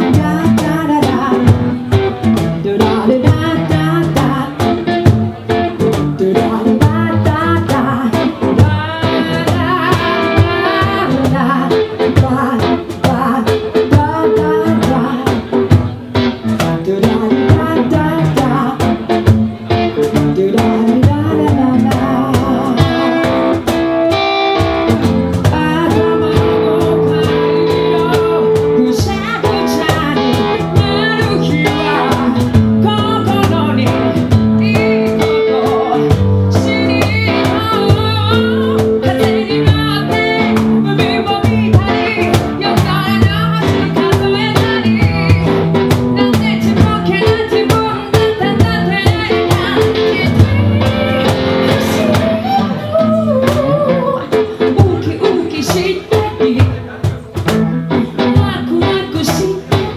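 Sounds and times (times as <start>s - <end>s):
woman singing: 0.0s - 57.2s, 57.9s - 59.9s
acoustic guitar: 0.0s - 59.9s
cajon played by hand: 0.0s - 59.9s.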